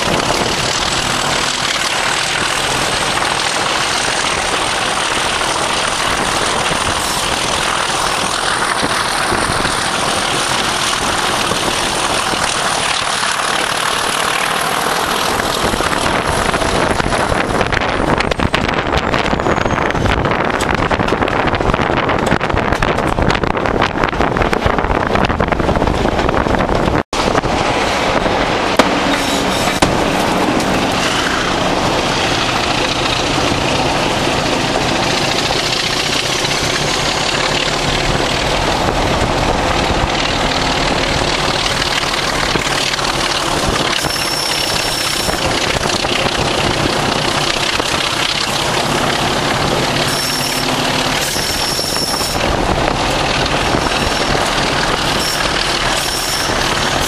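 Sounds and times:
diesel locomotive exhaust thrash: 0:00.0 - 0:57.0
rushing air: 0:00.0 - 0:57.0
wheel and rail noise: 0:00.0 - 0:57.0
high thin squeal: 0:18.9 - 0:20.3, 0:29.1 - 0:29.8, 0:43.9 - 0:45.4, 0:50.0 - 0:52.4, 0:55.1 - 0:56.6.

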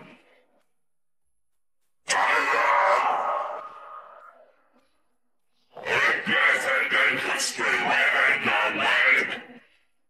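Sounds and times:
harsh distorted male vocal: 0:02.1 - 0:03.8, 0:05.8 - 0:09.5.

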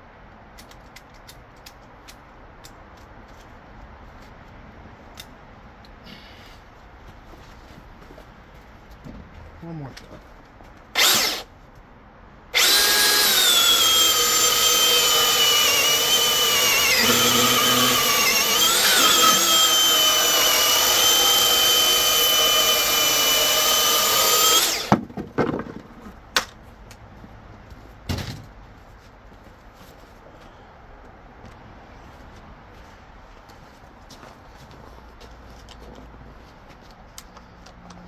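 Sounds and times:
chainsaw cutting wood: 0:11.0 - 0:11.5, 0:12.5 - 0:25.0.

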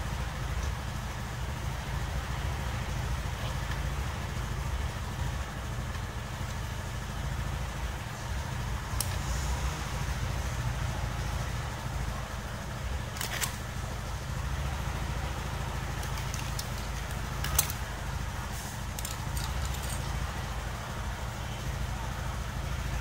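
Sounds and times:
low background rumble: 0:00.0 - 0:23.0
light metallic clicks and clinks: 0:08.8 - 0:09.6, 0:13.0 - 0:13.8, 0:15.8 - 0:20.6.

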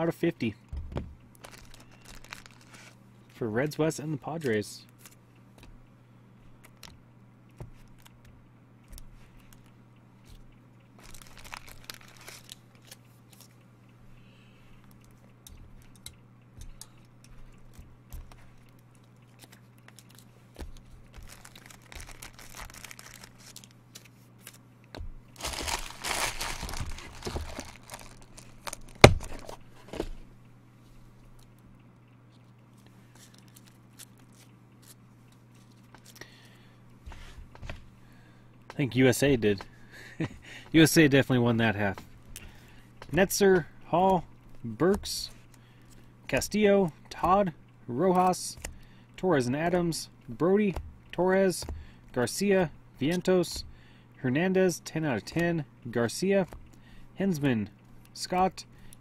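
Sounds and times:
steady low hum: 0:00.0 - 0:59.0
foil wrappers crinkling and tearing: 0:01.4 - 0:03.0, 0:11.0 - 0:13.5, 0:19.3 - 0:24.6, 0:25.4 - 0:29.6.

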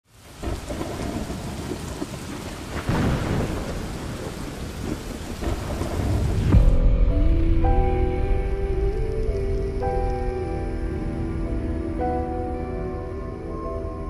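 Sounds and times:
steady rain: 0:00.0 - 0:14.0
thunder clap: 0:00.4 - 0:07.5
low thunder rumble: 0:00.4 - 0:10.1.

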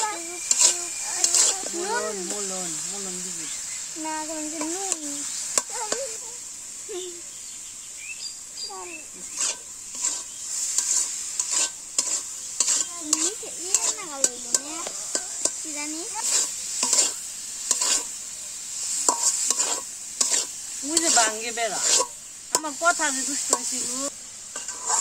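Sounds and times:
metal spatula scraping a pan: 0:00.0 - 0:02.8, 0:09.2 - 0:18.2, 0:18.8 - 0:25.0
food sizzling in oil: 0:00.0 - 0:25.0.

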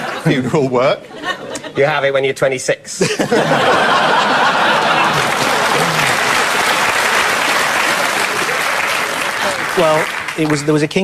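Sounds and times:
audience laughing: 0:00.0 - 0:01.8, 0:03.0 - 0:09.8
audience applauding: 0:03.7 - 0:11.0.

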